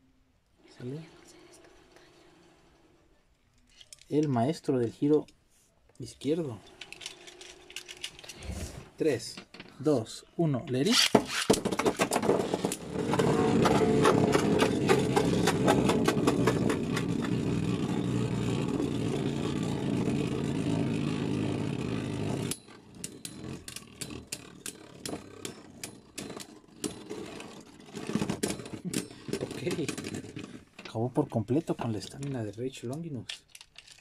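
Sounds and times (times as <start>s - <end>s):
spinning tops rattling whir: 11.0s - 30.8s.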